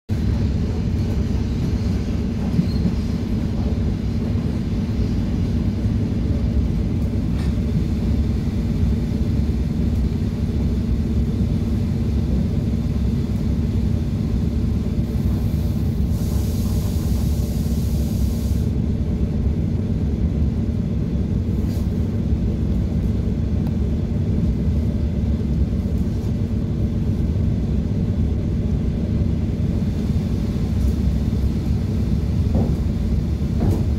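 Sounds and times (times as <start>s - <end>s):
train rumble and hum: 0.0s - 33.9s
high hiss: 16.0s - 18.7s.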